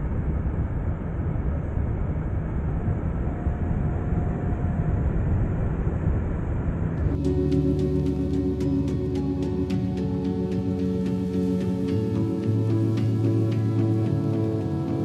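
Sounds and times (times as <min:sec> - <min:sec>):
music: 0:07.0 - 0:15.0.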